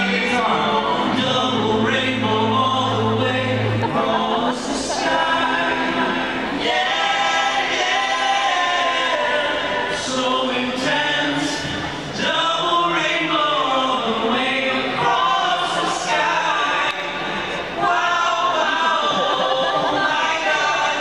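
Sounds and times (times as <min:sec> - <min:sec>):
crowd singing together: 0:00.0 - 0:21.0.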